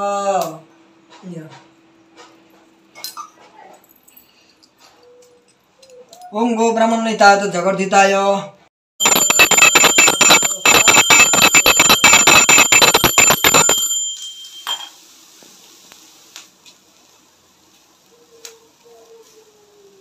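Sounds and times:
hand bell ringing rapidly: 9.1 - 14.9.

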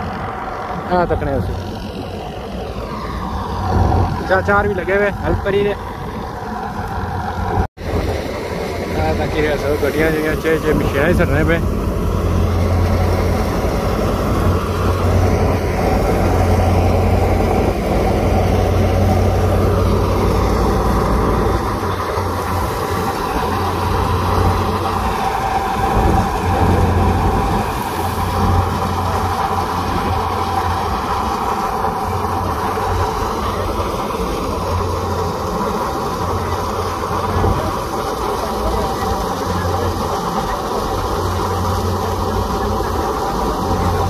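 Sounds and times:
threshing machine droning: 0.0 - 44.0.

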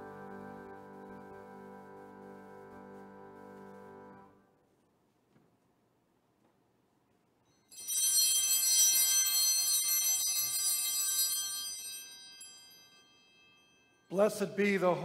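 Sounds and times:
small bells jingling: 7.5 - 14.9.

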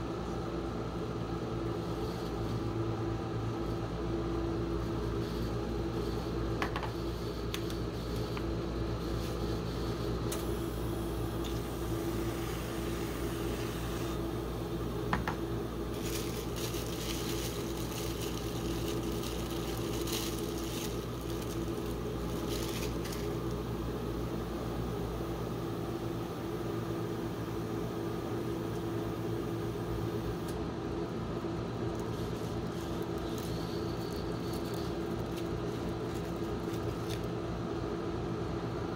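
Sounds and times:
refrigeration unit humming: 0.0 - 38.9.

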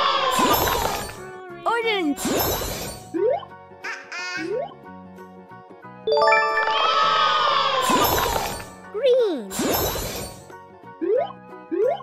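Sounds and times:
cheerful children's music: 0.6 - 9.5.

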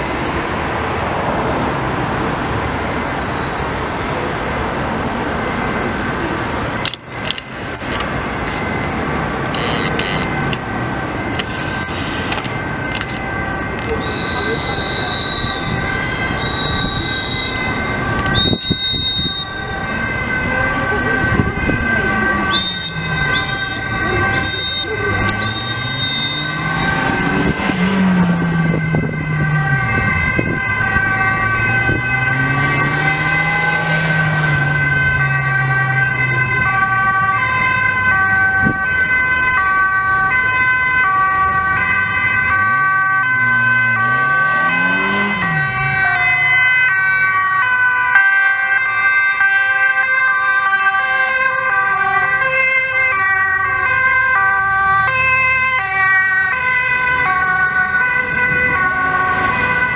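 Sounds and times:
two-tone emergency sirens: 0.0 - 59.9
motorcycle engines passing: 19.9 - 38.0, 41.2 - 48.1.

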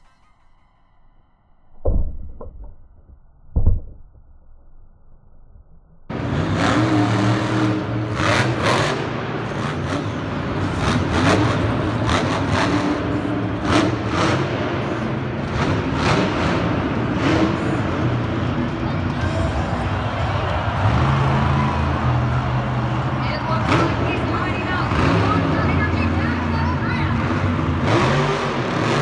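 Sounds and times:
monster truck engine revving: 6.1 - 29.0.

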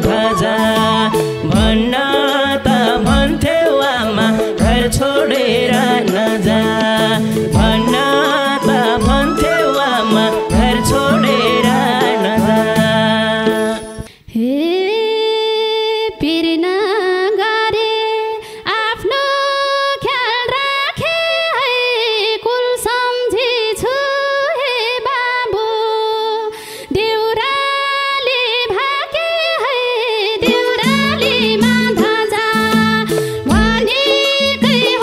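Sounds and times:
woman singing solo: 0.0 - 2.2, 7.6 - 20.6
backing band playing: 0.0 - 2.3, 4.2 - 13.9, 30.5 - 34.3.

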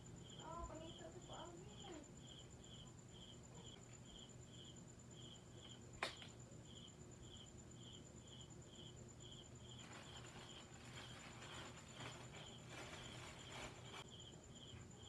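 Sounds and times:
faint cricket chirping: 0.0 - 15.0
sharp click: 6.0 - 6.4.

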